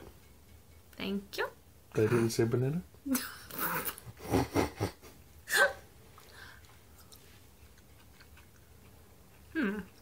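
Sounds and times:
breathy laughs: 0:03.2 - 0:05.8
faint chewing: 0:06.1 - 0:10.0.

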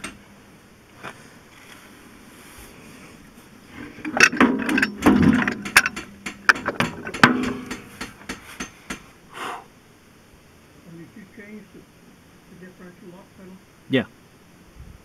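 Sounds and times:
metal clanks knocks and scrapes: 0:03.8 - 0:09.0.

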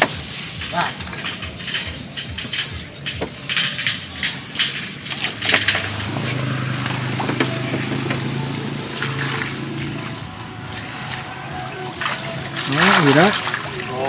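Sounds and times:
sharp clattering and knocks: 0:00.0 - 0:10.3
low motor hum: 0:05.0 - 0:13.9.

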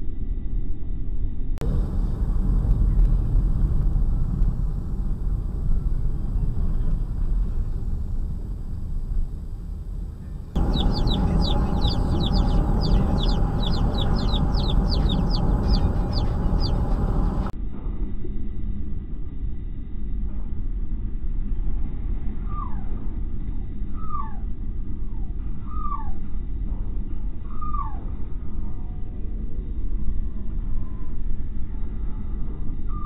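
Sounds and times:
car road and engine drone: 0:01.6 - 0:17.6.

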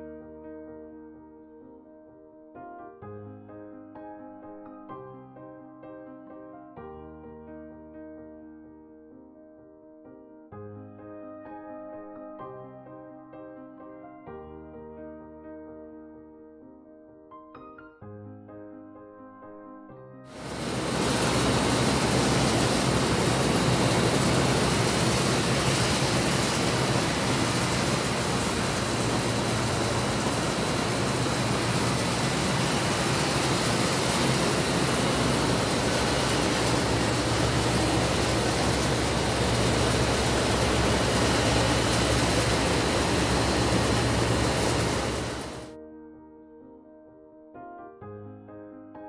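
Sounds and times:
low mechanical hum: 0:20.4 - 0:45.7
rushing outdoor noise: 0:20.4 - 0:45.7.

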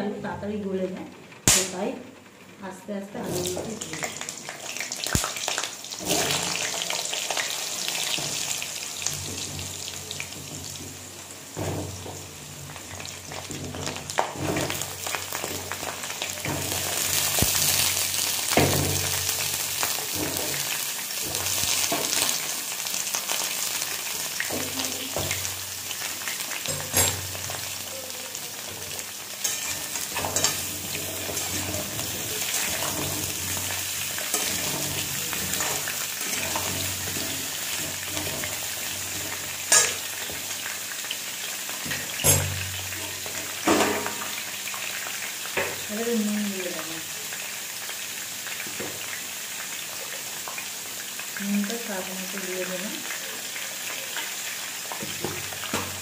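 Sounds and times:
potatoes sizzling in hot oil: 0:00.2 - 0:56.0
metal spatula stirring: 0:29.4 - 0:40.5.

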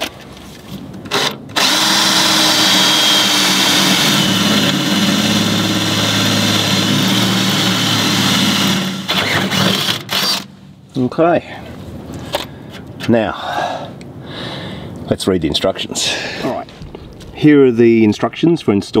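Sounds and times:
drill boring into steel: 0:01.2 - 0:10.5.

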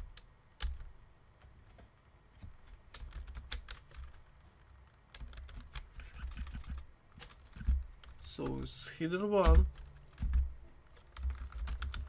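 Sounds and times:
typing on computer keyboard: 0:02.6 - 0:04.3, 0:05.1 - 0:08.6, 0:09.4 - 0:12.0.

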